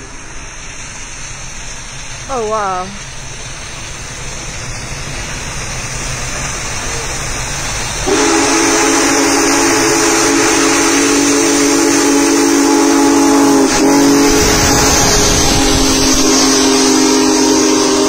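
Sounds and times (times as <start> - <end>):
steam locomotive approaching: 0.0 - 18.0
steam whistle blast: 8.0 - 18.0.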